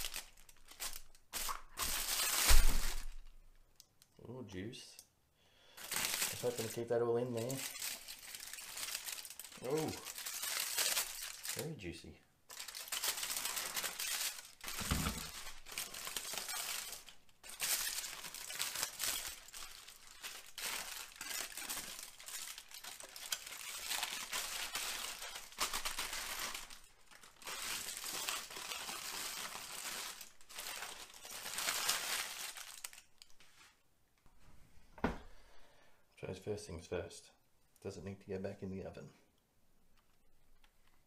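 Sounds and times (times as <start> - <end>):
aluminium foil crinkling: 0.0 - 4.1, 5.8 - 11.9, 12.5 - 33.5.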